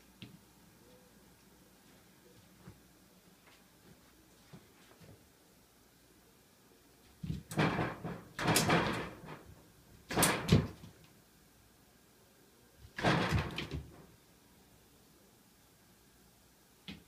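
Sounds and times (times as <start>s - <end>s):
door knocking and rattling: 7.2s - 10.8s, 13.0s - 14.0s.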